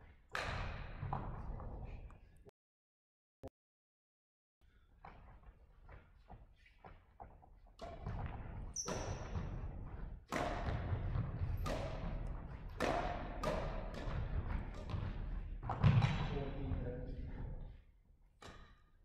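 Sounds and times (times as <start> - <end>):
racket striking shuttlecock: 10.3 - 14.9, 18.4 - 18.8.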